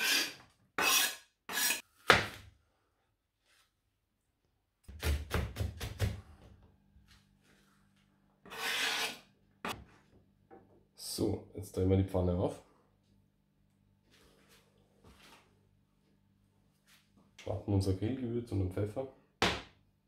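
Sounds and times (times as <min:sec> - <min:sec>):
knife scraping cutting board: 0:00.0 - 0:01.9, 0:08.4 - 0:09.8.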